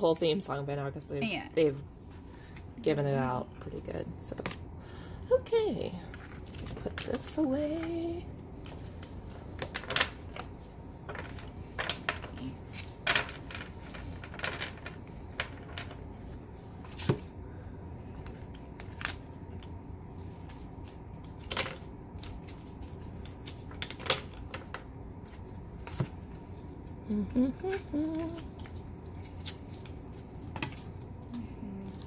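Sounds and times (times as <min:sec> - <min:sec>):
low room hum: 0:00.0 - 0:32.0
cards clicking and tapping: 0:27.4 - 0:32.0.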